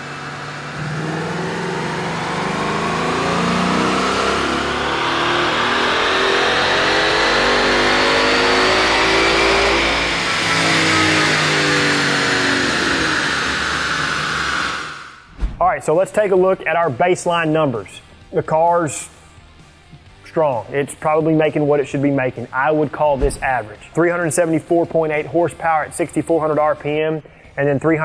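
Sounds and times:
car engine revving at full throttle: 0:00.0 - 0:15.3.

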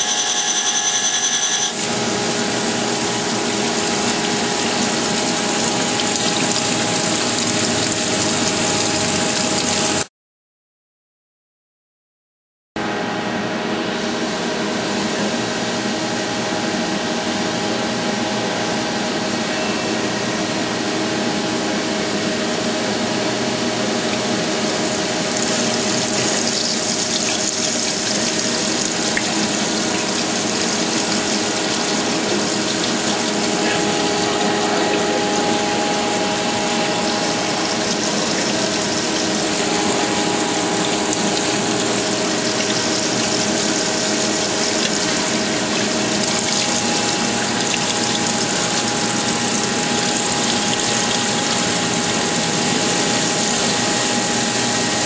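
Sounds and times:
grinder machine humming: 0:00.0 - 0:10.0, 0:21.2 - 0:55.0
coolant hissing: 0:01.8 - 0:10.1, 0:21.8 - 0:55.0.

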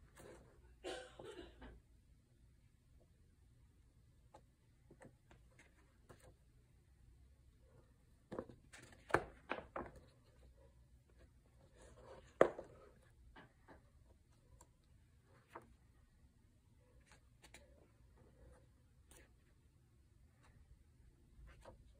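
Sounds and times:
paper pages rustling: 0:16.8 - 0:19.6, 0:21.4 - 0:21.9.

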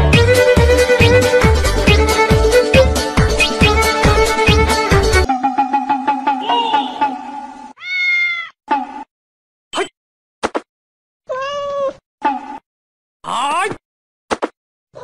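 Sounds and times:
cat meowing: 0:07.8 - 0:08.6, 0:11.3 - 0:12.0.

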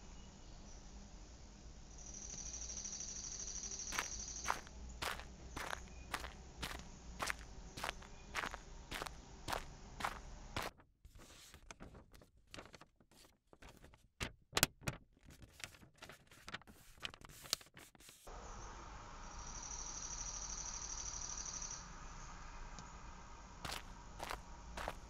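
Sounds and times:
outdoor ambience: 0:00.0 - 0:14.3, 0:15.4 - 0:25.0
footsteps on pavement: 0:03.9 - 0:10.8, 0:23.6 - 0:25.0
paper letter crackling: 0:04.0 - 0:18.3.

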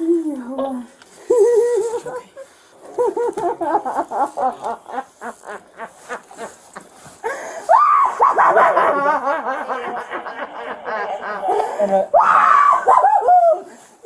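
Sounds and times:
woman wailing screams: 0:07.7 - 0:08.3, 0:12.1 - 0:13.7.

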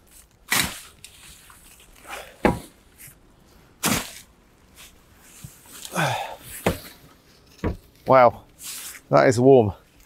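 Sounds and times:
garden fork scraping compost: 0:00.0 - 0:02.4, 0:03.8 - 0:05.9, 0:06.5 - 0:09.2.

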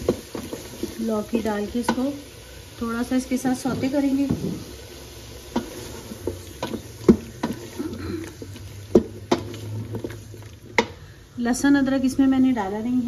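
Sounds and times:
wooden spoon knocking metal pot: 0:00.0 - 0:01.1, 0:01.8 - 0:02.1, 0:03.6 - 0:04.7, 0:05.5 - 0:11.0
light sizzle of frying: 0:00.0 - 0:13.0.

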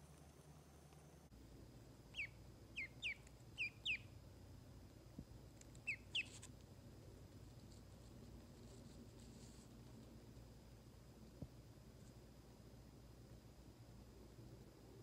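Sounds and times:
duckling peeping: 0:02.1 - 0:04.2, 0:05.8 - 0:06.5.

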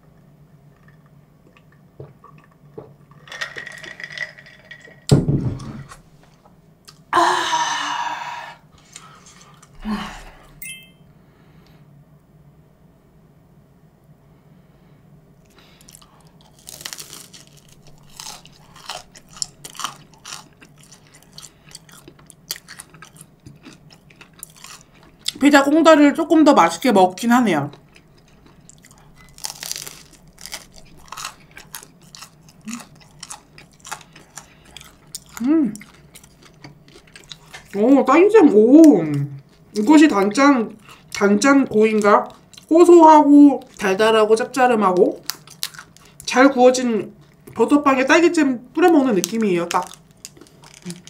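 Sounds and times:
woman exhaling loudly: 0:07.1 - 0:08.6, 0:09.8 - 0:10.6
crunchy chewing of pizza crust: 0:15.4 - 0:25.4, 0:27.7 - 0:37.8, 0:44.8 - 0:46.3, 0:49.2 - 0:51.0.

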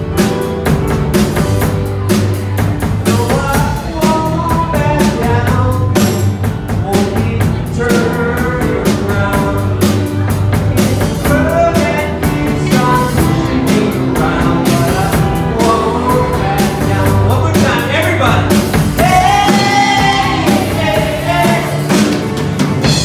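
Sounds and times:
bass guitar: 0:00.0 - 0:23.0
drum kit beat: 0:00.0 - 0:23.0
keyboard: 0:00.0 - 0:23.0
rock band playing: 0:00.0 - 0:23.0.

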